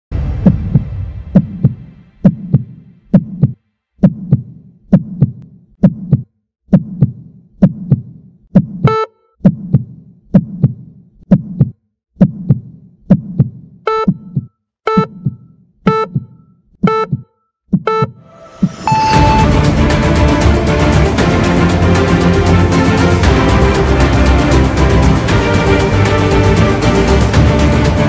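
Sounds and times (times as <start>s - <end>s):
heartbeat double thump: 0.2s - 19.5s
short electronic beep: 8.8s - 9.3s, 13.9s - 19.6s.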